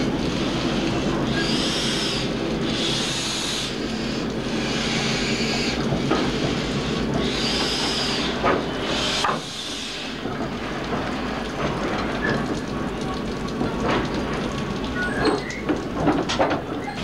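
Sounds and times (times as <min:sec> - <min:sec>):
steam engine low rumble: 0:00.0 - 0:16.9
steam hiss bursts: 0:01.4 - 0:10.2.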